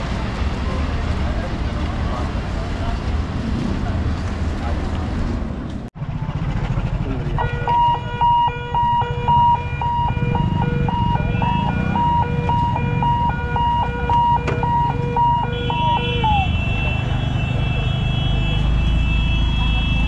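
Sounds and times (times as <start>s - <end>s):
level crossing hooter beeping: 7.3s - 20.0s.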